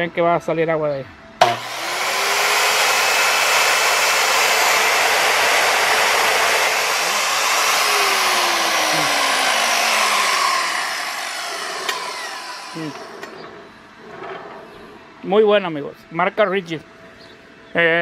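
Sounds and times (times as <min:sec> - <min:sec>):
wet tile saw running: 0:01.4 - 0:14.5.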